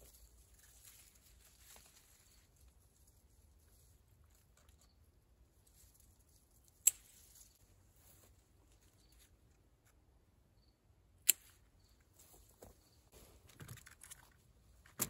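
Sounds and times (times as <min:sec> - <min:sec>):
leaves rustling: 0:00.0 - 0:04.9, 0:05.5 - 0:09.3
pruning shears snipping stems: 0:06.7 - 0:07.5.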